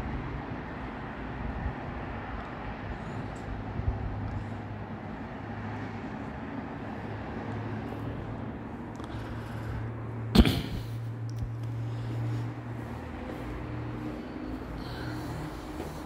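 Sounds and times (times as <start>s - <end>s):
distant traffic hum: 0.0s - 16.0s.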